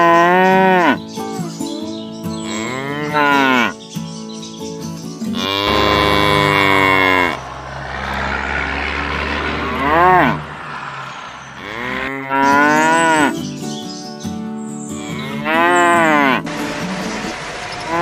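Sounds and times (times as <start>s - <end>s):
cows mooing: 0.0s - 1.0s, 2.4s - 3.8s, 5.3s - 13.5s, 14.9s - 18.0s.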